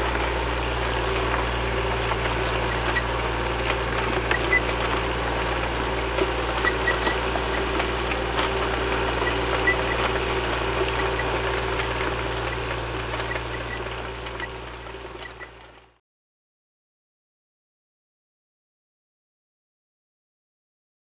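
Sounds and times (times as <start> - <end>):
tank engine rumble: 0.0 - 16.0
mechanical clicks: 2.2 - 15.8.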